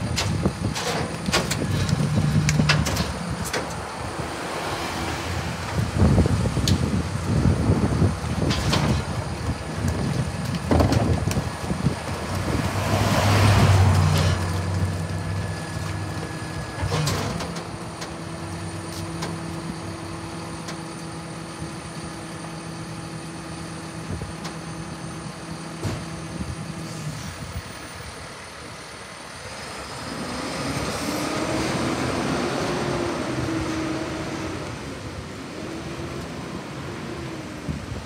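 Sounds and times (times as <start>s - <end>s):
truck engine revving: 0.0s - 22.0s, 30.0s - 37.7s
garbage truck engine and hydraulics: 0.0s - 38.0s.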